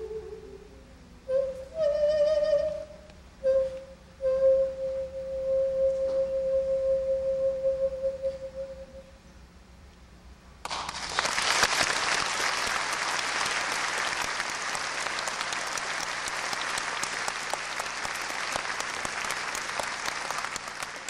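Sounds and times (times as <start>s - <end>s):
audience applause: 10.6s - 21.0s.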